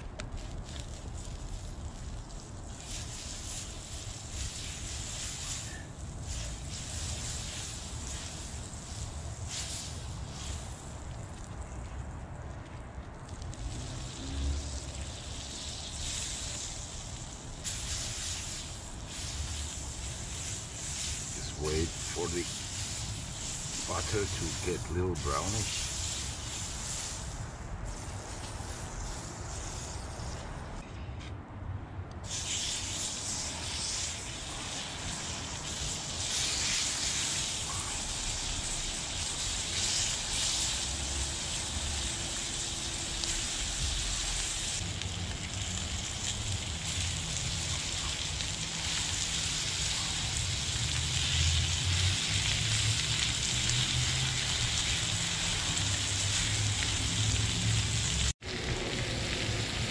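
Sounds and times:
meat sizzling in a frying pan: 0:13.6 - 0:28.0, 0:32.3 - 0:59.9.

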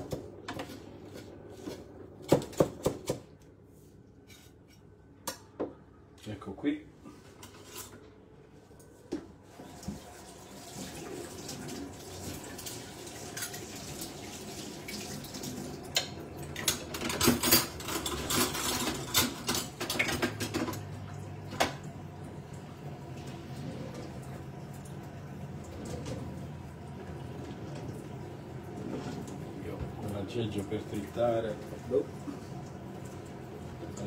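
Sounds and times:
dishes and cutlery clattering: 0:16.6 - 0:20.9.

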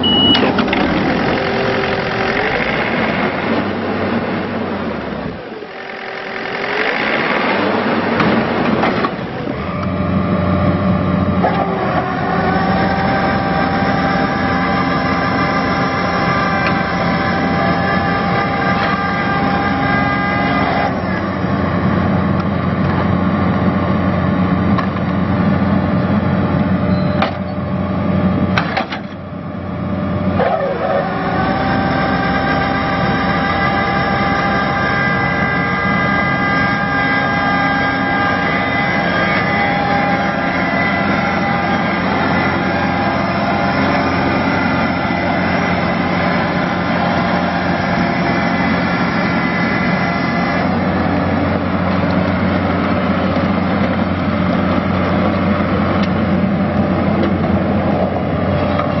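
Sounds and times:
diesel mower engine running: 0:00.0 - 0:59.0
high mechanical whine: 0:00.0 - 0:59.0.

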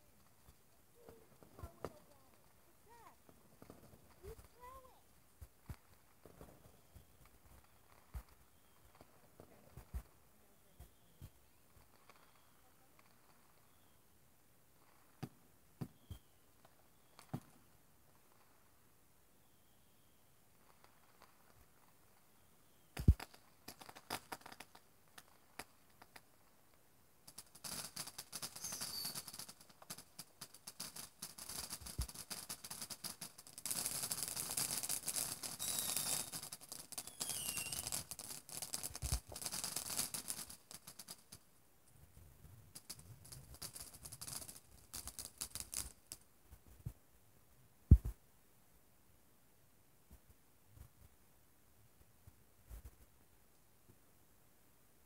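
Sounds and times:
firework crackling: 0:00.0 - 0:46.9
firework bangs: 0:01.0 - 0:05.0, 0:23.0 - 0:26.2, 0:27.3 - 0:41.4.

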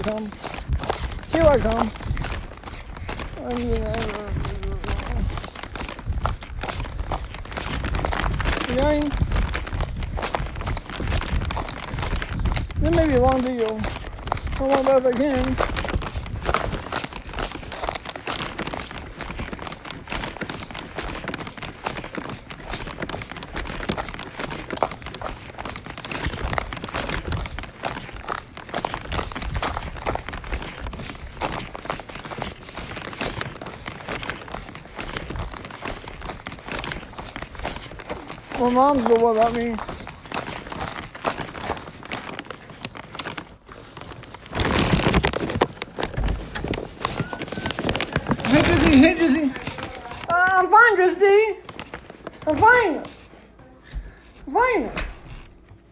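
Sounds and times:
crinkling and rustling: 0:00.0 - 0:55.9
phone handling rustling and scraping: 0:40.1 - 0:50.4.

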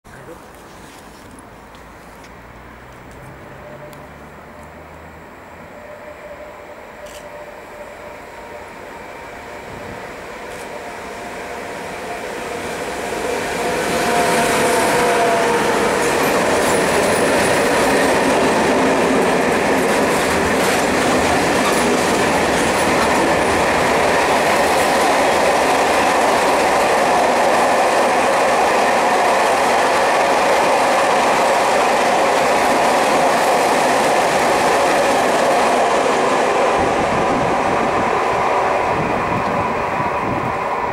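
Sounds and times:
electric locomotive whine: 0:00.5 - 0:40.9
train wheels clattering over rails: 0:13.8 - 0:37.1.

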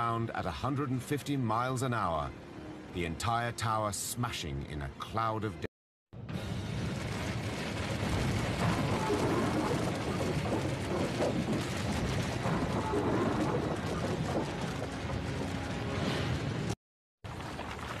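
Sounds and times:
building collapsing: 0:06.5 - 0:18.0.

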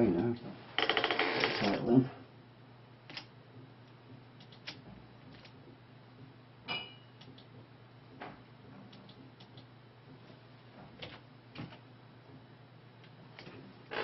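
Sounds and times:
computer mouse clicks: 0:03.1 - 0:03.3, 0:04.4 - 0:05.6, 0:08.9 - 0:09.7.

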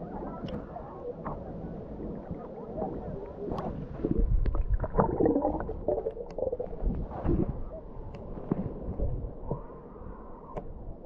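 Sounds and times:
water sloshing: 0:04.0 - 0:07.6.

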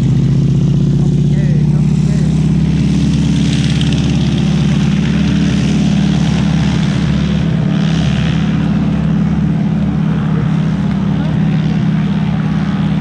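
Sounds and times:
radial aircraft engine running: 0:00.0 - 0:13.0.

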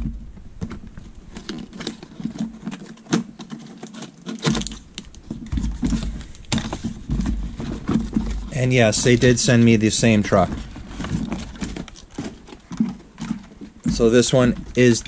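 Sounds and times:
cardboard box being opened: 0:01.0 - 0:15.0.

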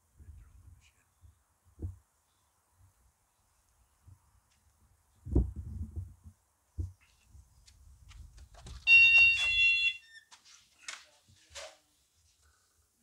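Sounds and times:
electronic beep: 0:08.9 - 0:10.1.

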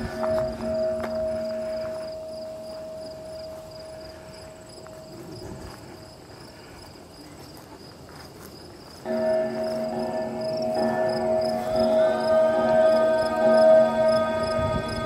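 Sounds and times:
low sustained musical chord: 0:00.0 - 0:05.7, 0:09.0 - 0:15.0
sustained ringing tone: 0:00.0 - 0:05.9, 0:09.0 - 0:15.0
crickets chirping: 0:00.0 - 0:15.0.

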